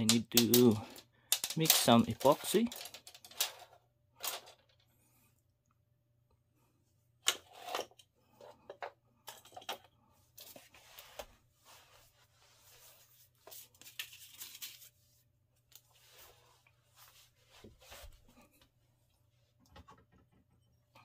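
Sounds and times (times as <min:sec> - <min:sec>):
items clicking on wooden table: 0:00.0 - 0:04.6.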